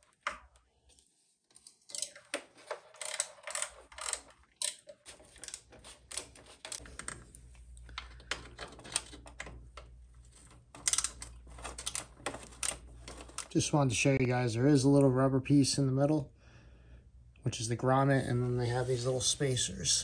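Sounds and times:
hand tools clicking and rattling: 0:01.9 - 0:06.8
low steady hum: 0:03.0 - 0:20.0.

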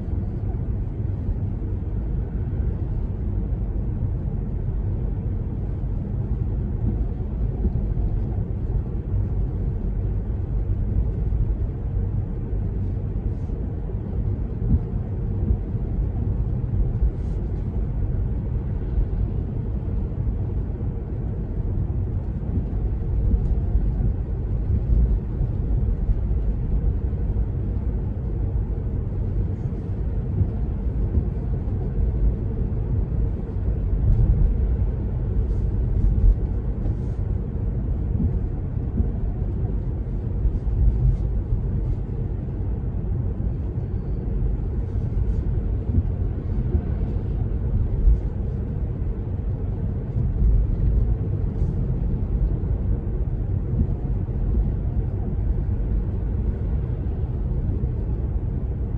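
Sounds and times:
car engine rumble: 0:00.0 - 0:58.9.

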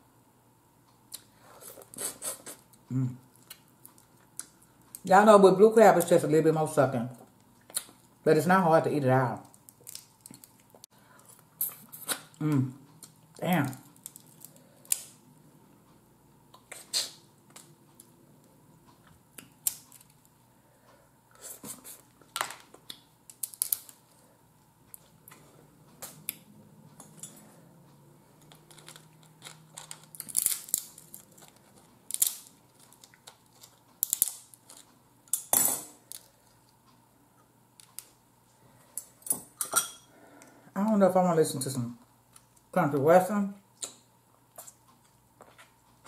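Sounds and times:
sucking and chewing: 0:01.1 - 0:05.0, 0:28.3 - 0:35.0
crab shells cracking: 0:09.4 - 0:10.9, 0:13.0 - 0:15.2, 0:19.4 - 0:20.4, 0:22.2 - 0:24.0, 0:28.4 - 0:36.4.

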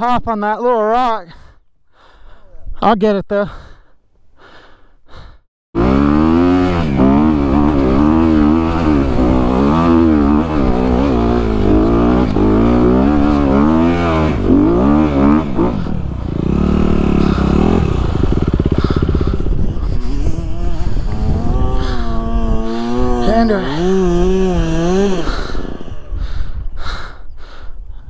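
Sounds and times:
dirt bike engine revving: 0:05.8 - 0:26.2.

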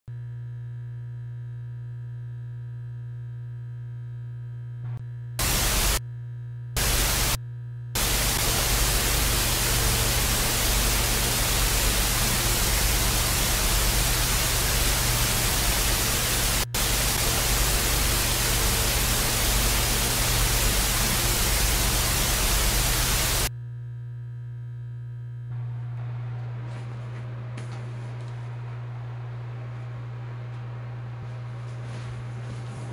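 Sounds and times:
steady low hum: 0:00.4 - 0:32.9
television static hiss: 0:05.4 - 0:06.0, 0:06.8 - 0:07.4, 0:08.0 - 0:23.5.

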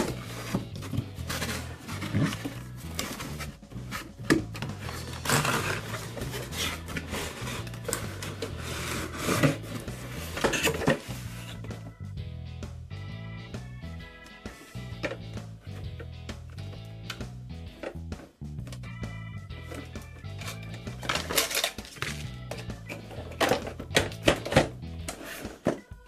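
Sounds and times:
cardboard box scraping and knocking: 0:00.0 - 0:11.9
background music: 0:00.0 - 0:26.0.

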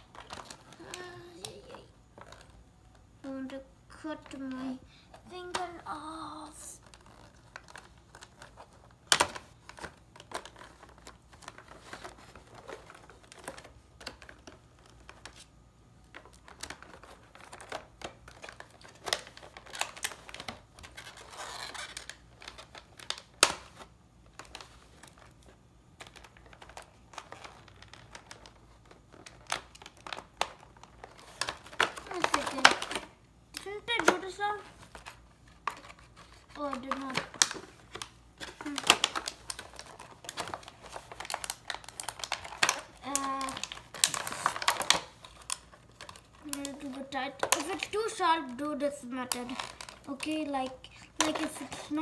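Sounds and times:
stiff plastic crinkling: 0:00.0 - 0:52.0
sharp plastic snaps: 0:31.4 - 0:34.4, 0:41.2 - 0:48.0.

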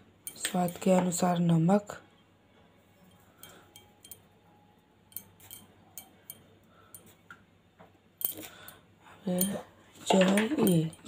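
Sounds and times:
metallic ticks of kitchen utensils: 0:00.2 - 0:01.2, 0:03.0 - 0:04.3, 0:05.1 - 0:07.1, 0:08.2 - 0:11.0
utensils clattering: 0:03.0 - 0:04.2, 0:05.1 - 0:07.1, 0:08.2 - 0:11.0.

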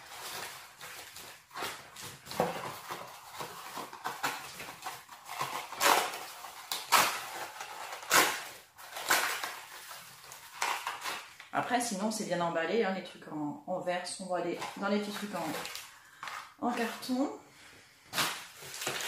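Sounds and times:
cardboard rustling: 0:00.0 - 0:11.4, 0:14.6 - 0:17.2
plastic air-cushion wrap crinkling: 0:18.1 - 0:19.0.

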